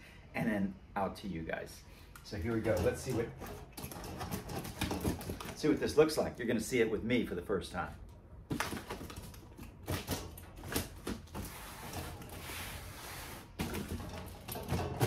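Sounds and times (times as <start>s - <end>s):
cardboard scraping rustle: 10.0s - 14.2s.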